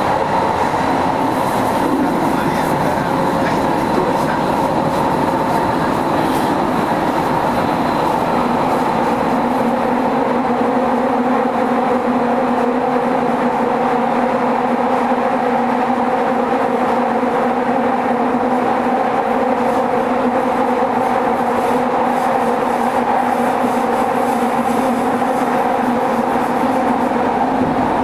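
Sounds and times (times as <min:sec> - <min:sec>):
underground train rumbling: 0:00.0 - 0:28.0.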